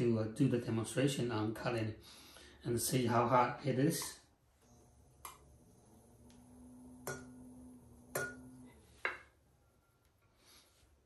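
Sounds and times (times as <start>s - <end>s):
faint steady hum: 4.5s - 10.4s.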